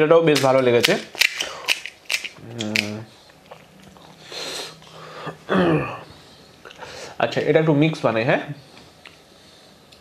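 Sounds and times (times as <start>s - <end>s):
crisp shell cracking: 0.3s - 3.7s
man humming: 2.4s - 3.2s, 5.3s - 6.1s.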